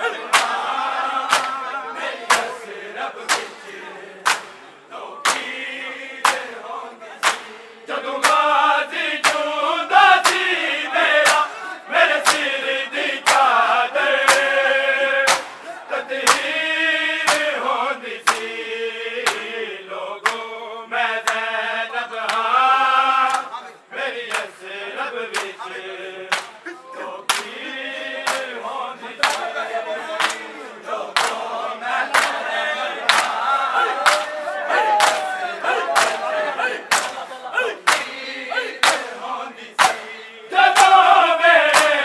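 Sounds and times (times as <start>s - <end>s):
men chanting together: 0.0s - 42.0s
hands slapping bare chests: 0.3s - 1.6s, 2.3s - 2.6s, 3.3s - 3.6s, 4.2s - 4.6s, 5.2s - 5.6s, 6.2s - 6.6s, 7.2s - 7.6s, 8.2s - 8.5s, 9.2s - 9.5s, 10.2s - 10.6s, 11.2s - 11.5s, 12.2s - 12.5s, 13.2s - 13.6s, 14.2s - 14.6s, 15.2s - 16.6s, 17.2s - 17.6s, 18.2s - 18.5s, 19.2s - 19.5s, 22.2s - 22.5s, 24.3s - 24.5s, 25.3s - 25.6s, 26.3s - 26.6s, 27.3s - 27.6s, 28.2s - 28.6s, 29.2s - 29.5s, 30.2s - 30.5s, 31.2s - 31.5s, 32.1s - 37.2s, 37.8s - 38.2s, 38.8s - 39.2s, 39.8s - 40.1s, 40.7s - 41.0s, 41.7s - 42.0s.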